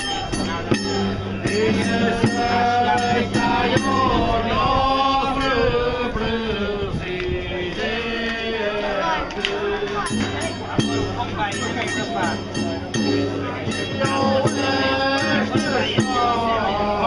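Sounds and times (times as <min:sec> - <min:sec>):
plucked string accompaniment: 0:00.0 - 0:04.7, 0:09.1 - 0:17.0.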